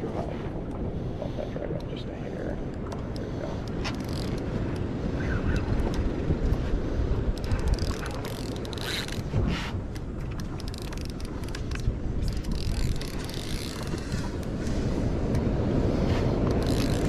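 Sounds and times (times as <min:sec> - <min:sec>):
wind rumble on microphone: 0:00.0 - 0:17.0
fishing reel clicking and whirring: 0:03.6 - 0:04.8, 0:07.3 - 0:09.3, 0:10.3 - 0:14.5, 0:16.5 - 0:17.0.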